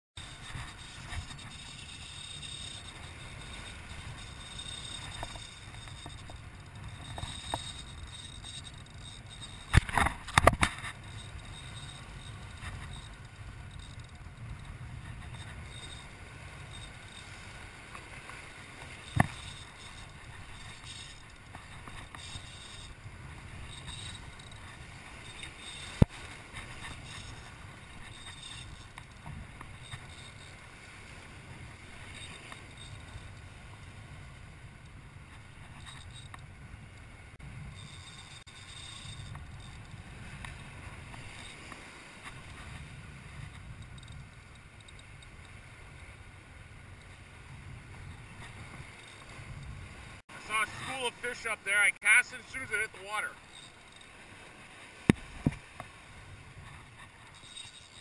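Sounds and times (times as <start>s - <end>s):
wind rumbling on microphone: 0.2s - 50.9s
surf washing against rocks: 48.4s - 57.4s.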